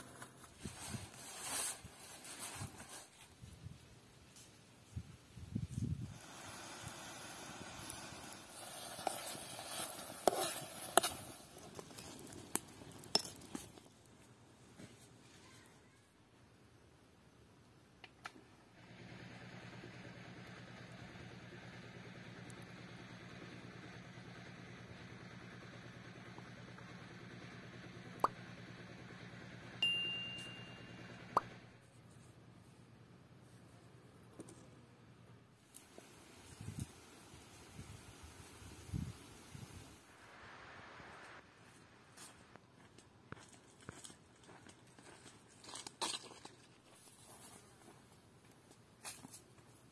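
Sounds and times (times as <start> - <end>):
soft hiss: 0.0 - 15.6, 35.4 - 42.7
faint steady hum: 16.1 - 45.8
bright bell ding: 29.8 - 31.2.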